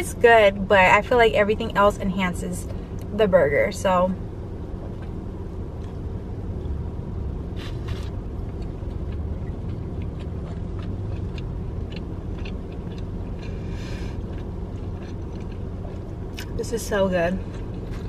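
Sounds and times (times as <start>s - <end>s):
person chewing food: 4.8s - 6.9s, 7.6s - 16.5s, 17.4s - 18.0s.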